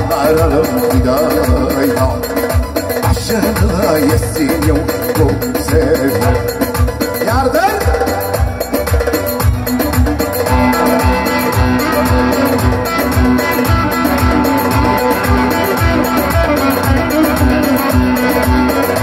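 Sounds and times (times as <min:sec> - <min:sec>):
drum machine beat: 0:00.0 - 0:19.0
amplified electric saz playing: 0:09.2 - 0:19.0.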